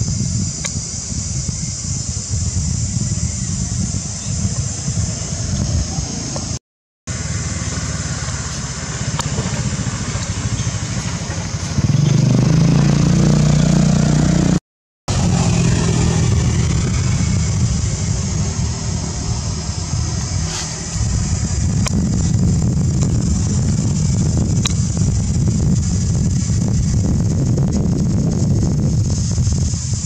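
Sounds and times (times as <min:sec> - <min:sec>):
high-pitched hiss: 0:00.0 - 0:12.6, 0:15.1 - 0:30.0
motor engine running: 0:00.0 - 0:30.0.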